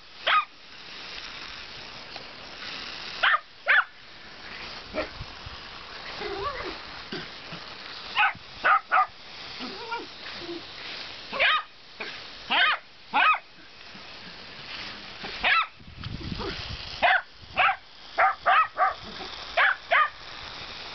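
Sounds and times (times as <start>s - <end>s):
dog yapping: 0.3s - 0.5s, 8.2s - 9.1s, 11.3s - 11.7s, 12.5s - 13.4s, 15.4s - 15.7s, 17.0s - 19.0s, 19.6s - 20.2s.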